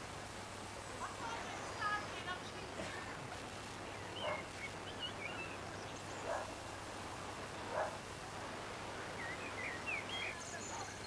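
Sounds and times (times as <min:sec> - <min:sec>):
birds chirping: 0:00.8 - 0:08.1, 0:08.9 - 0:11.0
dog barking: 0:04.2 - 0:04.5, 0:06.2 - 0:06.5, 0:07.7 - 0:08.0.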